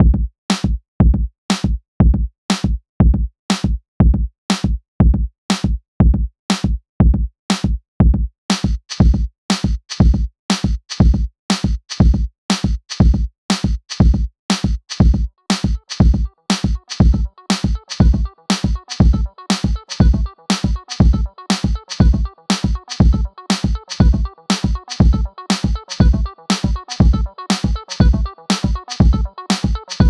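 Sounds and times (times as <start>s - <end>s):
drum machine beat: 0.0s - 30.0s.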